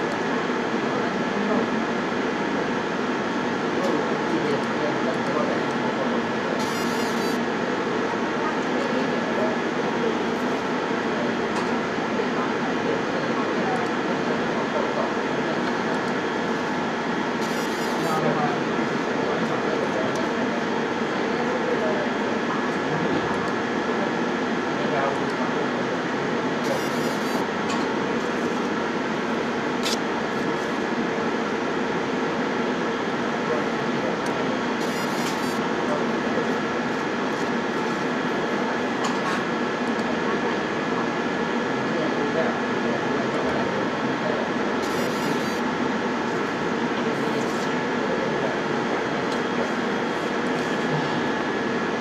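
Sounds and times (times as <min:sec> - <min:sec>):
laser marking machine whirring hum: 0:00.0 - 0:52.0
laser machine steady hiss: 0:06.6 - 0:07.4, 0:17.4 - 0:18.3, 0:26.6 - 0:27.4, 0:34.8 - 0:35.6, 0:44.8 - 0:45.6.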